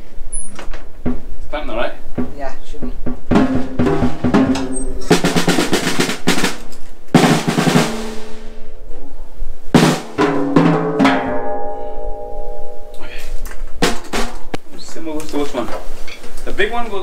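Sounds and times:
drum kit played with sticks: 2.0s - 14.7s
cymbal strikes ringing: 3.4s - 6.0s, 10.0s - 14.0s.

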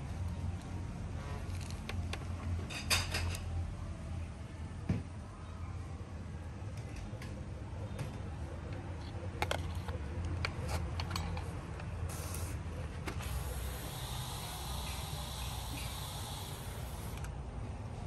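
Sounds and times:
hiss: 13.2s - 17.2s.

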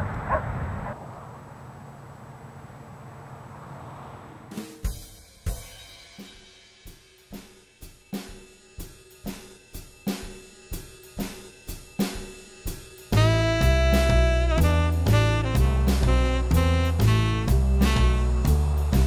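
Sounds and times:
drum kit beat: 4.6s - 19.0s
jazz band with saxophone: 13.1s - 19.0s.

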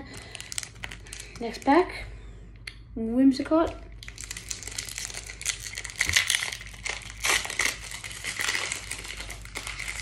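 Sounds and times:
foil wrapper crinkling: 0.0s - 1.8s, 3.9s - 10.0s.

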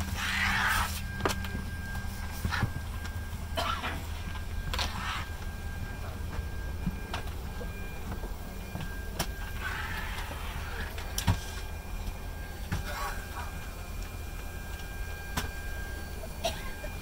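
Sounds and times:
faint steady whine: 0.0s - 17.0s
ventilation hum: 0.0s - 17.0s.

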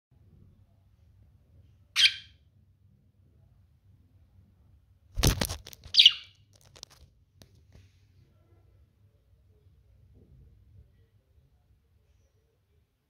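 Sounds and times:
budgerigar chirping: 2.0s - 2.4s, 5.9s - 6.3s
brief rustling: 5.2s - 7.9s.

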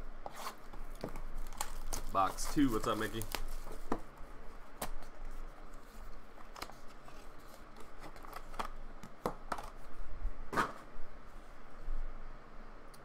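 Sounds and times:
plastic wrapper rustling: 0.8s - 4.0s.

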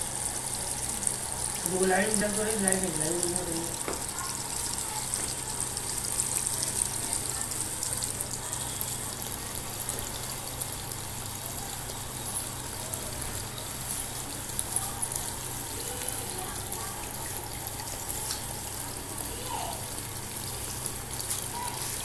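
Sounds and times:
fountain water trickling and splashing: 0.0s - 3.6s, 4.5s - 17.9s.

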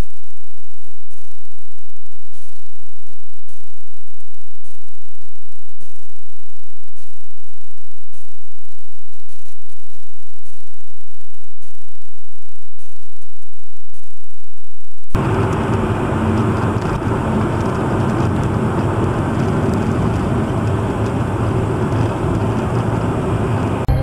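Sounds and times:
car driving on highway: 15.2s - 24.0s.

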